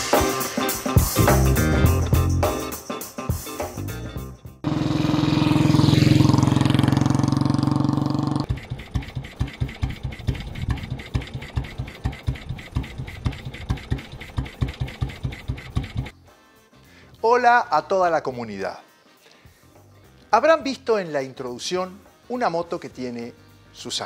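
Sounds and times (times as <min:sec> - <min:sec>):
motorcycle engine running: 0:04.6 - 0:16.1.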